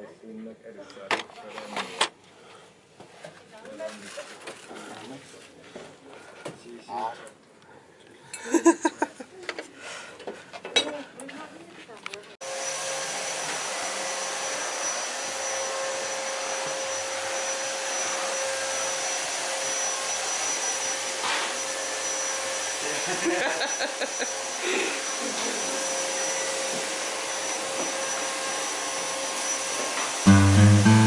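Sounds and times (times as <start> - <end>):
vacuum cleaner running: 12.4 - 31.0.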